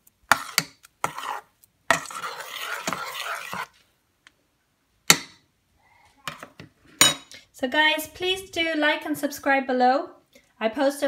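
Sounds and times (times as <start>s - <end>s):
spoon scraping in a metal pot: 0.3s - 3.8s.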